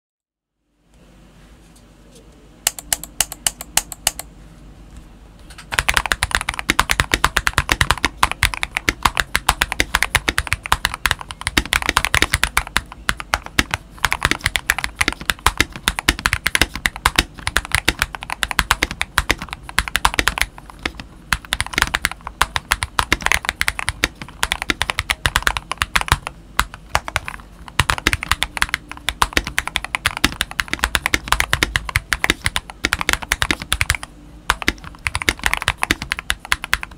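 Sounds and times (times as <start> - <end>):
mechanical keyboard typing: 2.7 - 4.3, 5.6 - 36.9.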